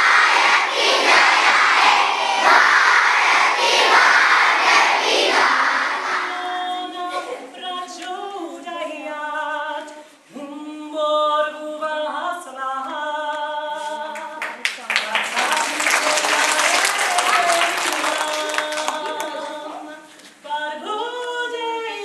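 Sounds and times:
children's voices in a hall: 0.0 - 9.2, 14.5 - 20.4.

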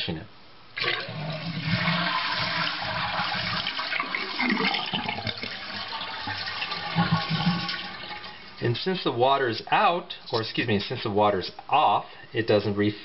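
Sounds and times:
toilet flushing: 0.8 - 8.7.

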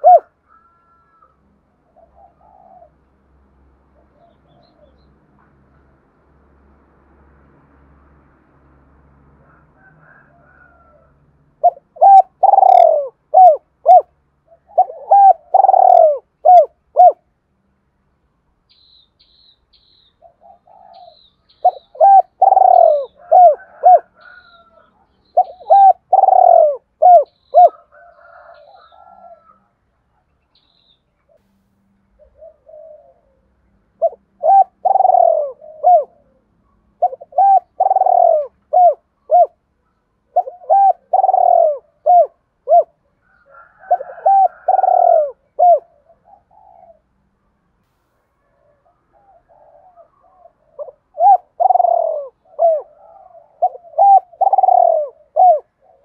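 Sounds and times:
dove cooing: 0.0 - 3.1, 9.5 - 17.3, 20.2 - 29.7, 32.2 - 39.6, 40.2 - 47.2, 48.4 - 56.0.

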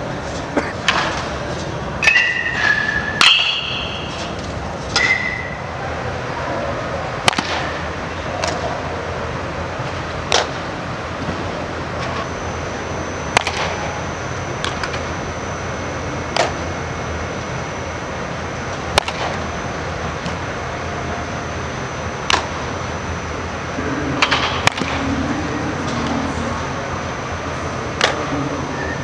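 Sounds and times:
steady background hum: 0.0 - 29.0
bat striking balls: 2.0 - 5.6, 7.2 - 8.7, 10.3 - 11.4, 13.3 - 14.0, 16.3 - 16.7, 18.8 - 19.5, 22.2 - 22.7, 24.2 - 25.1, 28.0 - 28.3.

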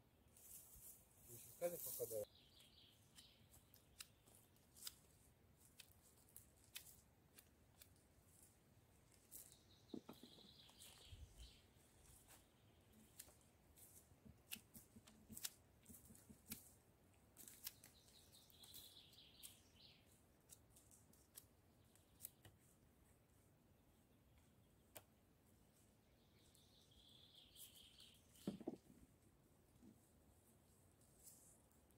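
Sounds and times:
sharp clicks of hand work: 3.1 - 6.0, 6.6 - 8.0, 14.3 - 16.7.

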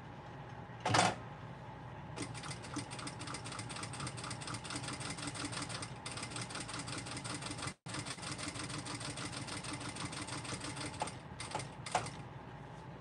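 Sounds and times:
sewing machine motor humming: 2.2 - 12.2
sewing machine stitching: 2.2 - 12.2.

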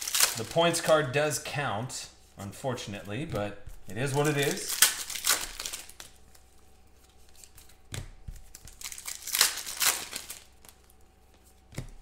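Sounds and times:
foil wrapper crinkling and tearing: 0.0 - 1.1, 4.0 - 6.5, 8.4 - 11.0.

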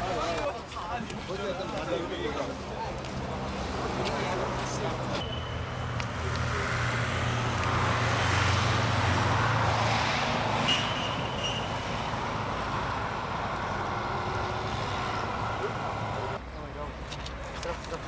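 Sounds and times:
car passing: 2.1 - 16.4.

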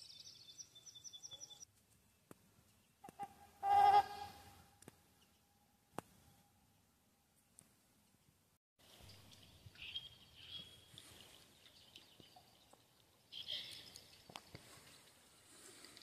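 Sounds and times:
faint high bird chirps: 0.0 - 1.7.

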